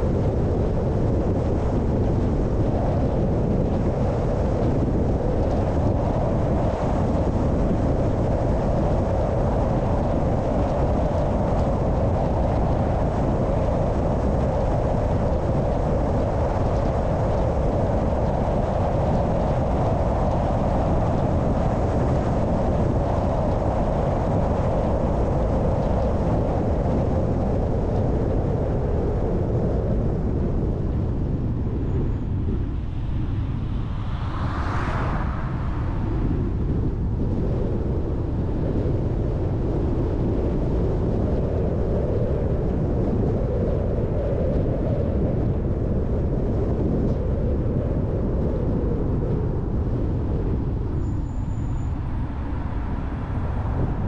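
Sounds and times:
car driving on road: 32.8s - 37.3s.

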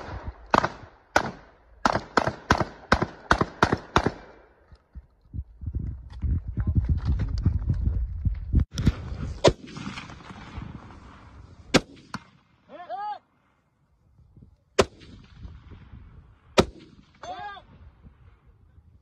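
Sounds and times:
rifle gunshots with echo: 0.0s - 4.5s, 8.9s - 12.7s, 14.8s - 17.3s.

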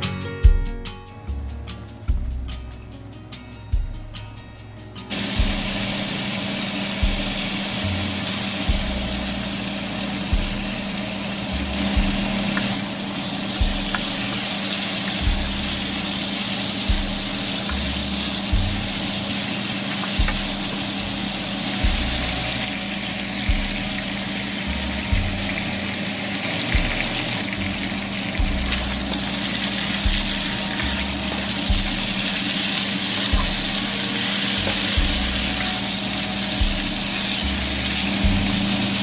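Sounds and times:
background music with low beat: 0.0s - 39.0s
sausage and onions sizzling: 5.1s - 39.0s.

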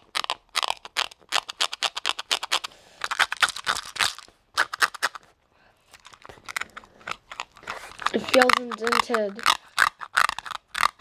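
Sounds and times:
fingernails scratching plastic wrap: 6.1s - 11.0s.

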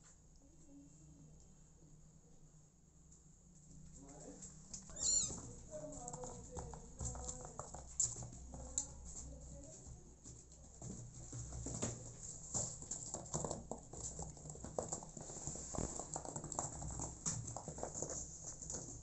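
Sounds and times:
soft clicks and scuffs on cardboard: 5.4s - 19.0s.

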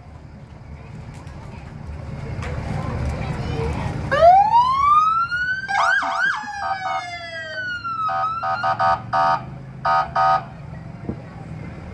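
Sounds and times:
fire truck siren wailing: 4.1s - 10.5s
short horn blasts: 8.4s - 10.5s.

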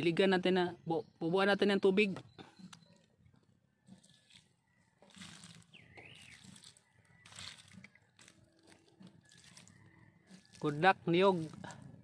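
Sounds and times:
water splashing onto soil: 4.0s - 12.0s.

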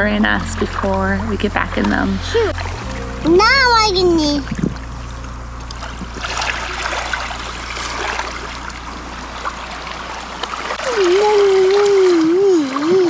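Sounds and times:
small waves lapping: 0.0s - 13.0s.

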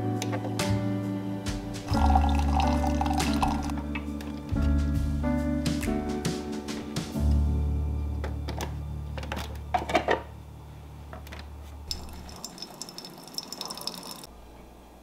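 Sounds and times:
coffee maker ticking buzz: 11.9s - 14.3s.

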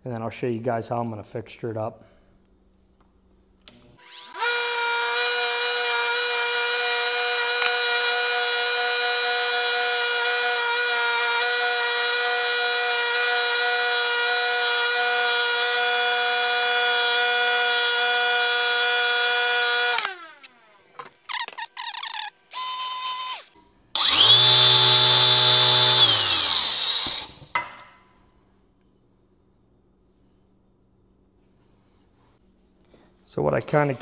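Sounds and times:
bench grinder whining: 4.0s - 27.6s.

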